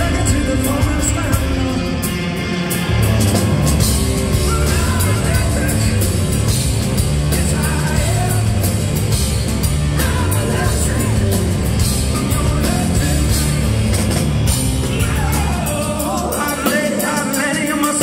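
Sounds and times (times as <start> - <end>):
man singing: 0.0 - 2.4, 4.3 - 6.5, 7.2 - 8.7, 9.9 - 13.7, 14.8 - 18.0
hard rock band playing live: 0.0 - 18.0.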